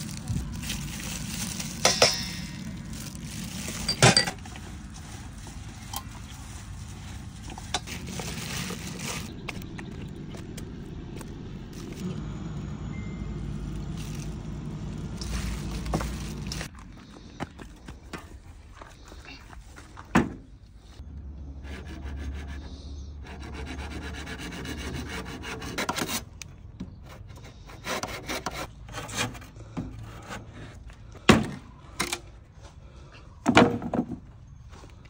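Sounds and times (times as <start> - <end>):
low steady hum: 0.0 - 23.4.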